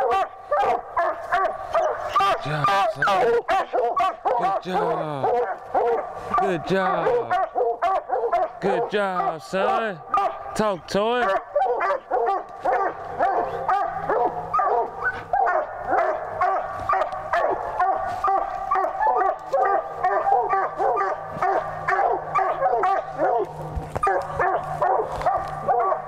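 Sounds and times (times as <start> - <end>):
hounds barking: 0.0 - 26.0.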